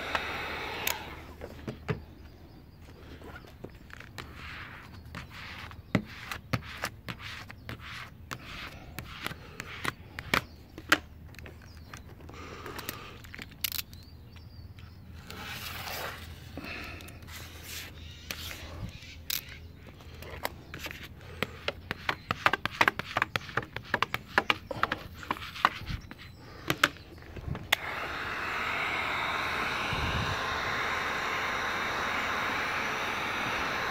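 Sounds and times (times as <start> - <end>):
squeegee scraping plastic film: 3.0 - 13.8, 15.1 - 27.8
sharp clicks and crinkles: 8.3 - 17.4, 18.2 - 27.9.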